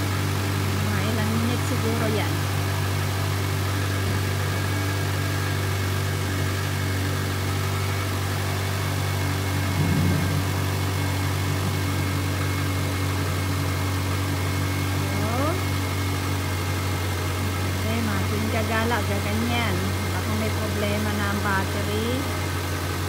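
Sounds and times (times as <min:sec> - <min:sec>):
car engine idling: 0:00.0 - 0:23.0
brief louder low sound: 0:09.7 - 0:11.0.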